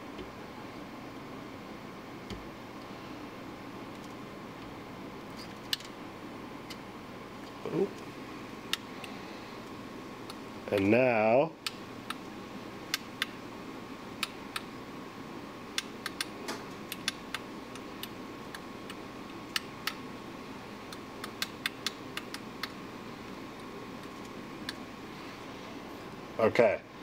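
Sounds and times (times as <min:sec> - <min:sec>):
sharp clicks: 0:15.8 - 0:20.0.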